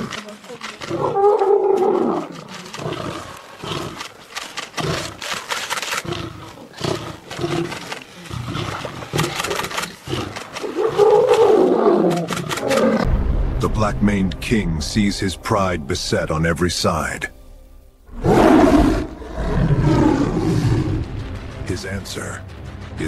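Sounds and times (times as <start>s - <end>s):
lions roaring and snarling: 0.0s - 13.1s, 18.1s - 21.2s.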